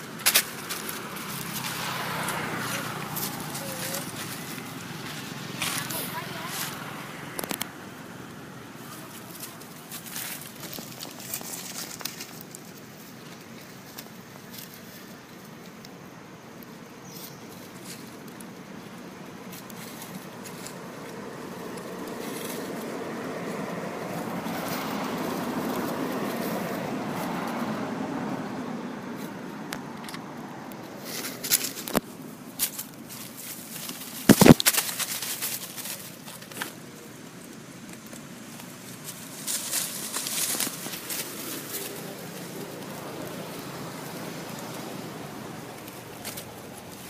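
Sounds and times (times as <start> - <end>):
vehicle passing: 0.0 - 47.0
sharp crackles and knocks: 9.2 - 15.8, 29.2 - 36.8.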